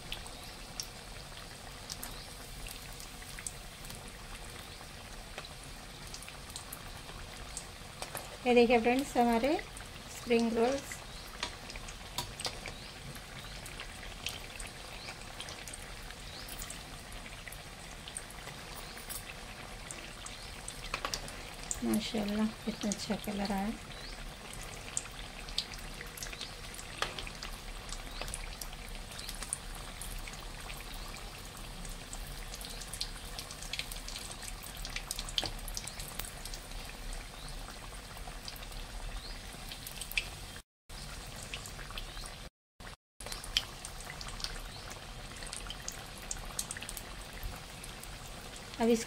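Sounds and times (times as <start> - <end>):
food sizzling in hot oil: 0.0 - 49.0.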